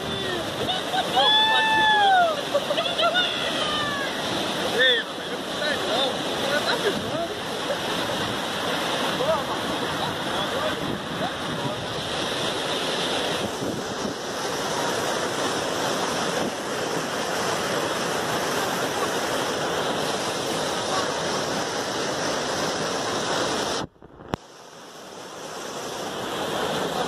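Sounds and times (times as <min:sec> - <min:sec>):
water rushing over rapids: 0:00.0 - 0:27.0
wind buffeting microphone: 0:08.0 - 0:22.8.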